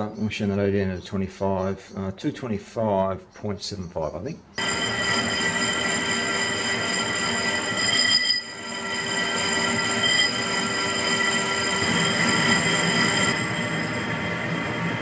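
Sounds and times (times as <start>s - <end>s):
cutting tool metallic squeal: 4.6s - 15.0s
lathe machine noise: 4.6s - 15.0s.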